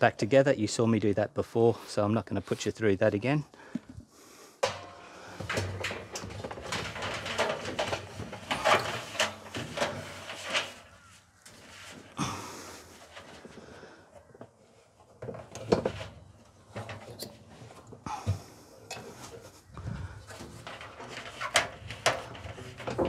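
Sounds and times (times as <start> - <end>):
hands refitting parts in dryer: 4.6 - 12.4, 15.1 - 23.0.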